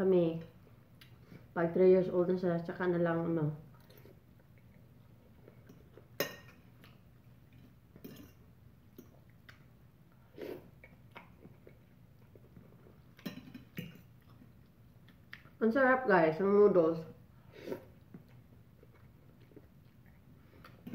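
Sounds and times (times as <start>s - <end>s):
chewing and slurping noodles: 17.5s - 20.9s.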